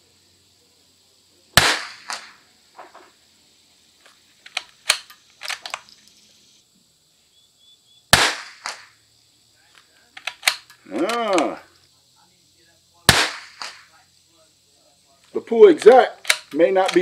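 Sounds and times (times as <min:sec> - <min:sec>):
rifle shots: 0:01.6 - 0:02.4, 0:08.1 - 0:08.9, 0:13.1 - 0:13.9
smaller crack: 0:01.6 - 0:03.1, 0:08.2 - 0:09.0, 0:13.1 - 0:13.9
rifle bolt clicks: 0:04.4 - 0:06.0, 0:10.2 - 0:11.5, 0:15.8 - 0:17.0.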